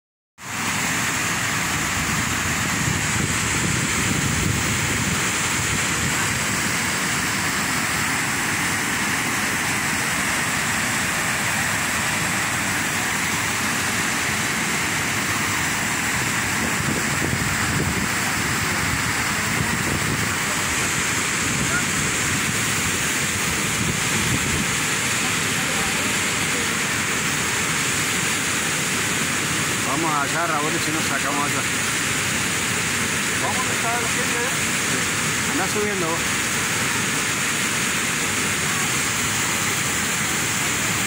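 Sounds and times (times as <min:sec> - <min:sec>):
waterfall rushing: 0:00.4 - 0:41.0.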